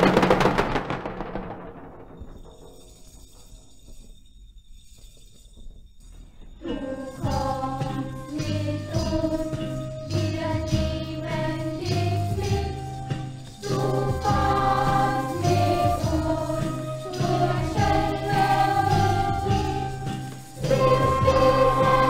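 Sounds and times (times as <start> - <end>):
jingling bells: 2.2 - 22.0
children's choir singing: 6.6 - 22.0
rhythmic bass: 6.7 - 22.0.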